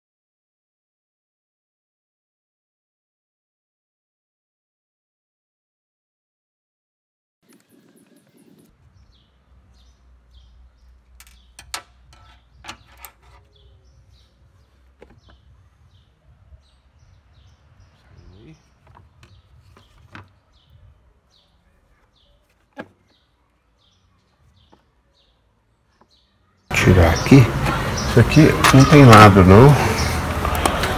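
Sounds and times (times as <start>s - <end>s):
bird chirping: 7.5s - 30.2s
plastic parts clicking and knocking: 11.0s - 13.5s, 18.8s - 20.4s.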